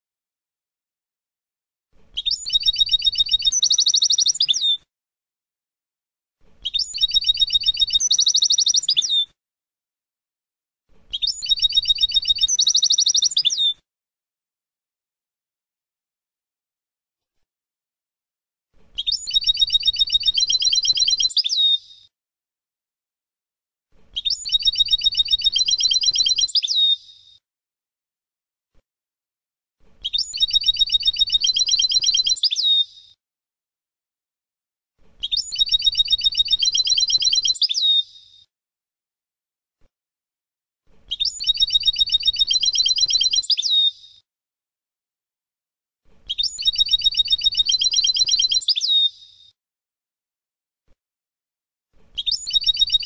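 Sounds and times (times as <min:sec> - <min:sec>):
goldfinch song: 0:02.1 - 0:04.8, 0:06.6 - 0:09.3, 0:11.1 - 0:13.8, 0:18.8 - 0:22.1, 0:24.1 - 0:27.2, 0:30.0 - 0:33.2, 0:35.2 - 0:38.4, 0:41.0 - 0:44.2, 0:46.2 - 0:49.4, 0:52.1 - 0:53.0
goldfinch song with rattling trill: 0:35.3 - 0:37.6, 0:52.2 - 0:53.0.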